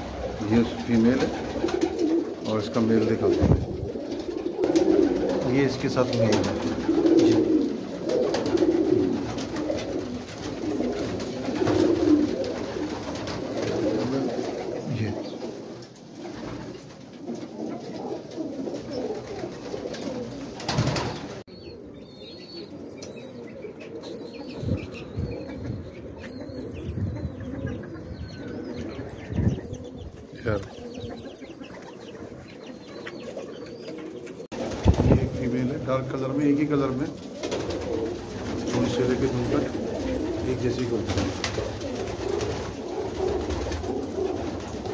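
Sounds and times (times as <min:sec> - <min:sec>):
pigeons cooing: 0:00.0 - 0:44.9.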